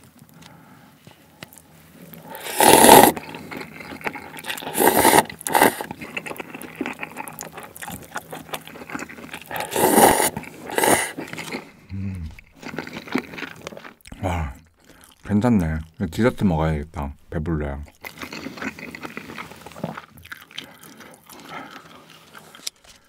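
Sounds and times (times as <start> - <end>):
wet chewing clicks: 1.4 - 16.1, 17.8 - 22.9
loud noodle slurping: 2.2 - 11.7.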